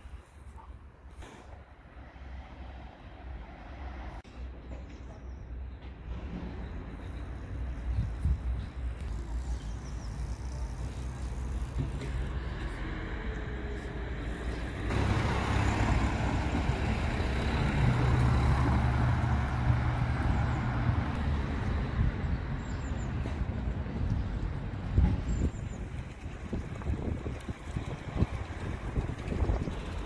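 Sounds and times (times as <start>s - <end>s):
street traffic: 0.0s - 30.0s
vehicle engine running close by: 14.9s - 21.1s.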